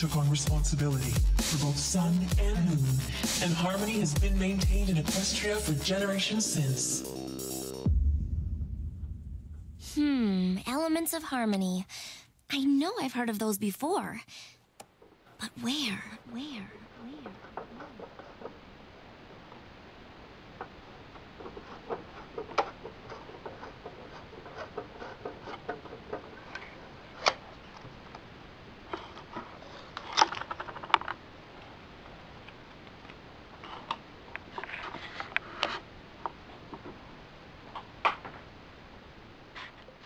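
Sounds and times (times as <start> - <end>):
crackling clicks and pops: 17.2 - 38.5.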